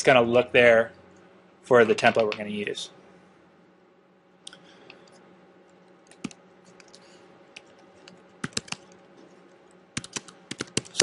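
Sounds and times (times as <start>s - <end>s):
faint steady hum: 0.0s - 11.0s
computer keyboard typing: 6.0s - 9.0s, 10.0s - 11.0s.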